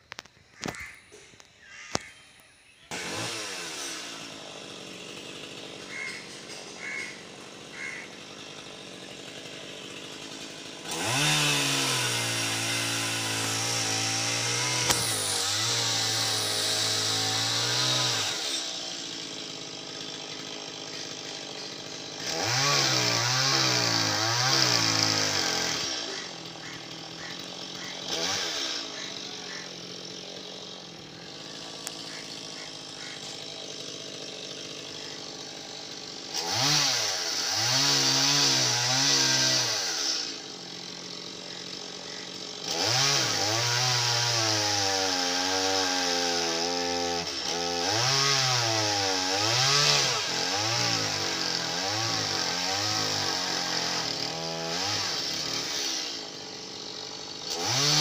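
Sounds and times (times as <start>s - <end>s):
chainsaw cutting wood: 0.0s - 2.1s, 2.9s - 58.0s.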